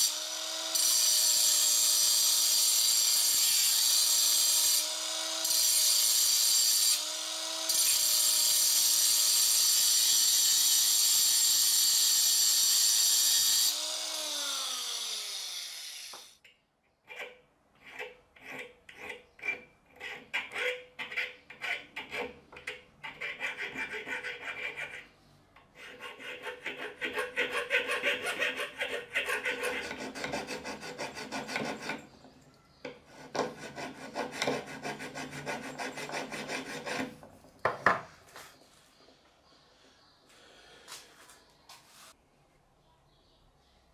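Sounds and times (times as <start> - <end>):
hand file scraping steel: 17.1 - 32.3, 32.9 - 37.3.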